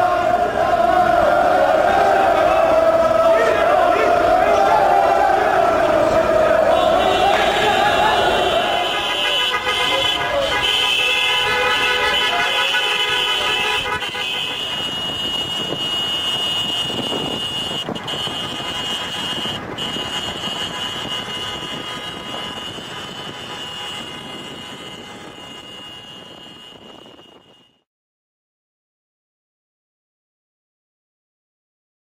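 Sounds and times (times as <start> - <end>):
highway traffic noise: 0.0 - 27.9
vehicle horn: 6.5 - 27.9.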